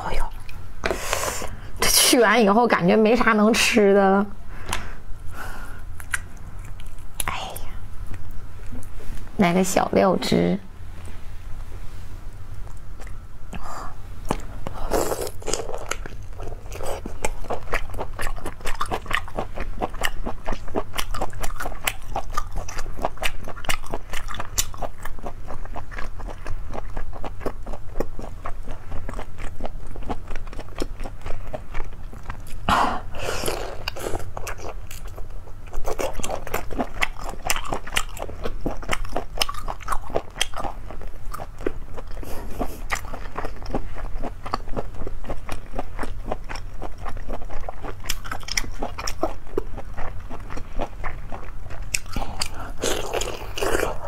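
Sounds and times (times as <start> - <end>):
crunchy chewing: 14.2 - 54.0.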